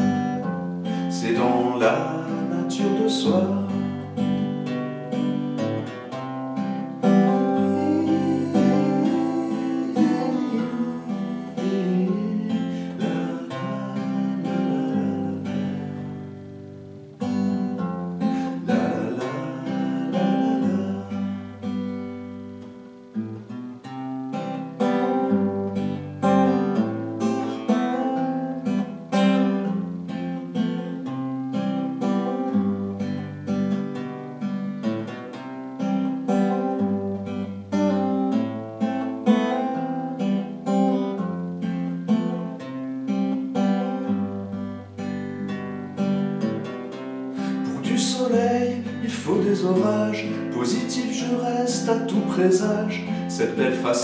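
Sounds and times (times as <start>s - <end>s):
acoustic guitar strumming chords: 0.0s - 54.0s.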